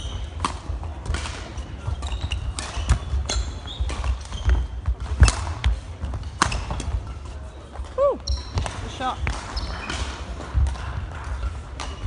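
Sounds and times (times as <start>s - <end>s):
racket hitting shuttlecock: 0.1s - 7.0s, 8.3s - 12.0s
shoes squeaking on wooden floor: 1.6s - 10.1s.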